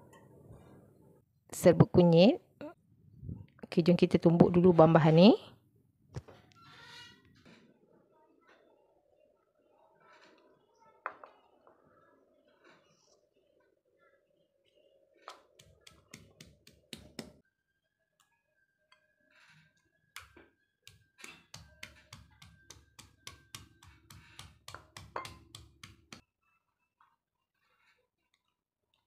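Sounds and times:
stone pestle pounding in mortar: 21.3s - 26.2s.

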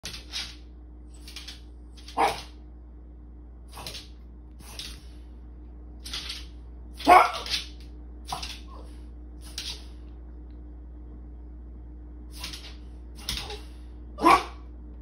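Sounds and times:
dog nails clicking on tile: 1.2s - 2.5s, 3.7s - 5.1s, 6.0s - 8.8s, 9.4s - 9.9s, 12.4s - 13.6s
dog barking: 2.0s - 2.6s, 7.0s - 7.6s, 14.2s - 14.7s.

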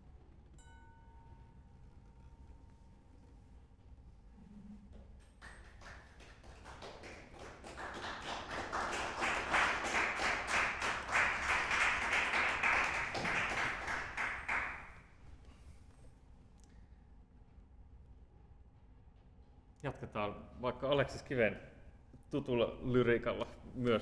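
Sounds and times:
audience clapping: 5.2s - 15.0s.

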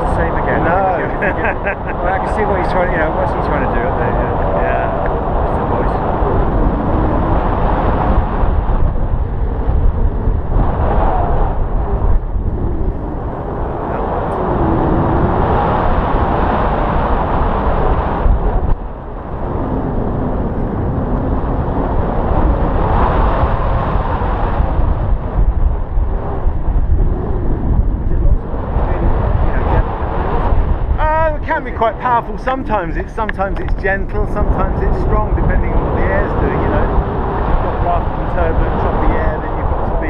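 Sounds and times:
wind rushing over microphone: 0.0s - 40.0s.

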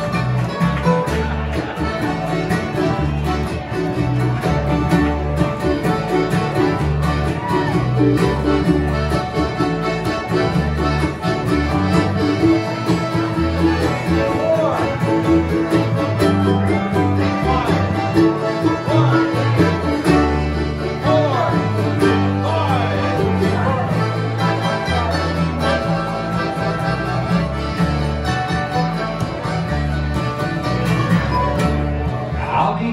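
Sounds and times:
accordion: 0.0s - 32.9s
acoustic guitar: 0.0s - 32.9s
banjo: 0.0s - 32.9s
mandolin: 0.0s - 32.9s
upright bass line: 0.0s - 32.9s.

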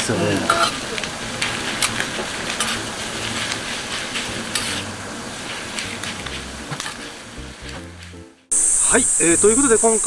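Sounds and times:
food sizzling on griddle: 0.3s - 7.7s
metal turners scraping iron plate: 1.4s - 7.2s.

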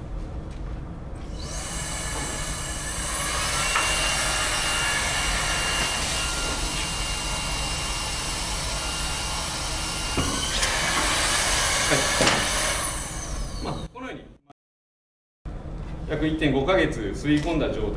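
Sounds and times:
vacuum cleaner motor whining: 1.2s - 13.9s.

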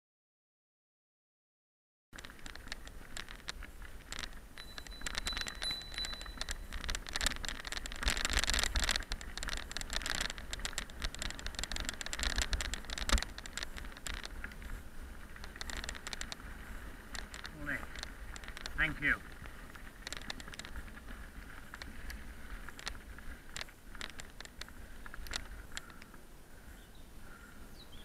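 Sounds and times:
tyres crunching on gravel: 2.2s - 26.2s
bicycle rattling over bumps: 2.2s - 28.0s
wind rumbling on microphone: 2.2s - 28.0s.

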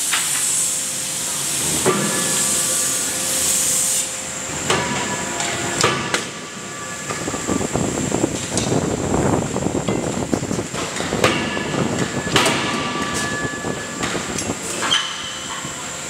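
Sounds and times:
steady hiss: 0.0s - 4.5s.

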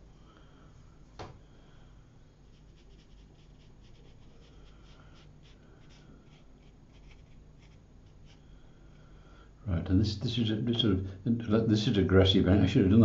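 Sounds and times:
paintbrush scratching on paper: 2.4s - 8.4s.

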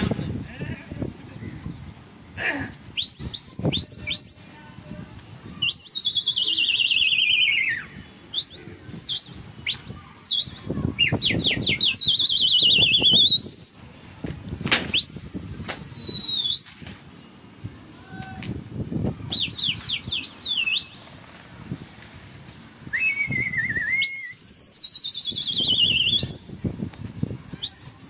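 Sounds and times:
shrill human whistling: 3.0s - 4.4s, 5.6s - 13.9s, 14.9s - 17.0s, 19.3s - 21.2s, 22.9s - 26.9s, 27.6s - 28.0s.

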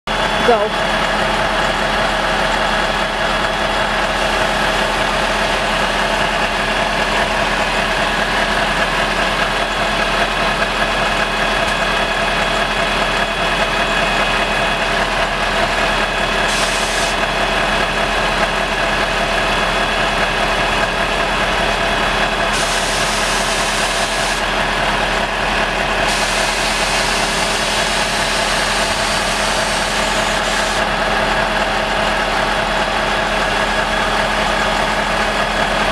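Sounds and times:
diesel truck engine idling: 0.1s - 35.9s.

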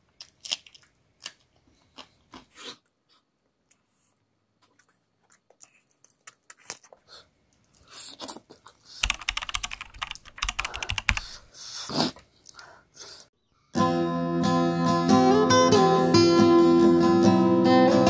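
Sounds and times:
person chewing and sucking food: 0.2s - 9.0s.

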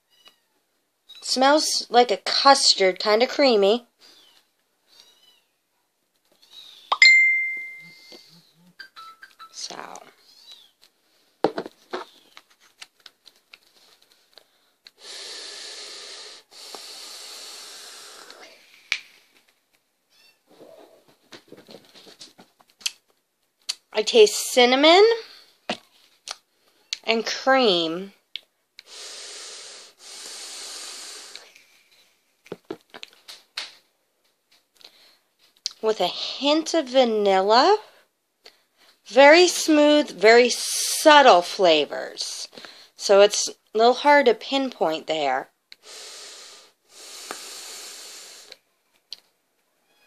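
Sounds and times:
air hissing through e-cigarette: 15.0s - 18.9s, 28.8s - 31.5s, 45.8s - 48.6s.

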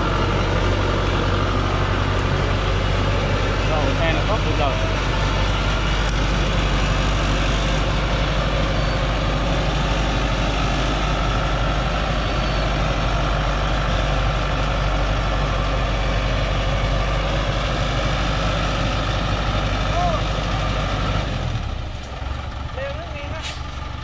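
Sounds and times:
diesel truck engine running: 0.0s - 24.0s.

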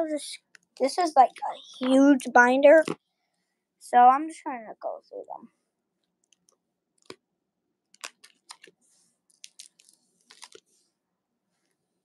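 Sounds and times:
plastic binder pages crinkling: 6.3s - 7.2s, 7.9s - 10.8s.

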